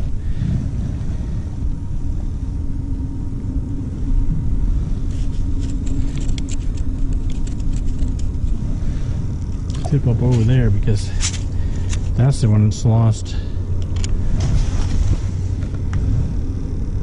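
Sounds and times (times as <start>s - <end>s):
wind rumble on microphone: 0.0s - 17.0s
clothing rustling: 14.4s - 15.6s.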